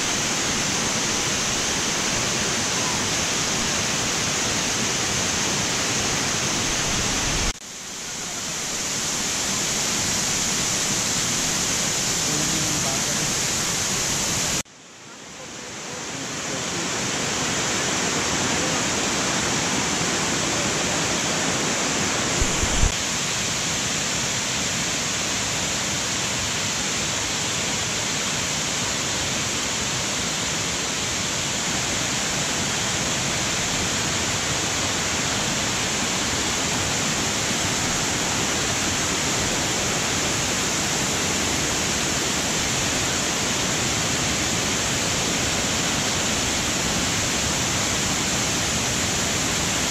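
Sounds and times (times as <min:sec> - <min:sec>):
waterfall roar: 0:00.0 - 0:49.9.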